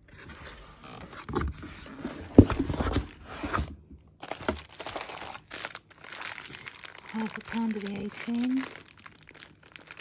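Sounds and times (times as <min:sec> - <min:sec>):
plastic bags rustling: 0:04.2 - 0:10.0.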